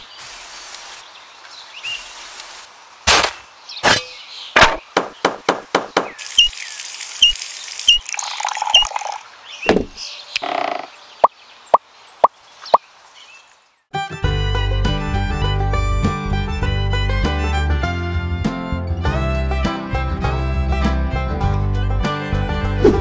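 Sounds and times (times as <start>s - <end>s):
water pouring into small pool: 6.2s - 9.3s.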